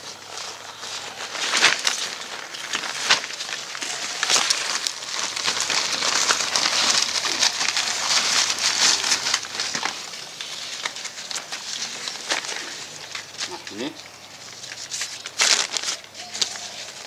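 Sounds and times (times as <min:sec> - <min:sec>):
plastic bag crinkling and tearing: 0:00.0 - 0:17.0.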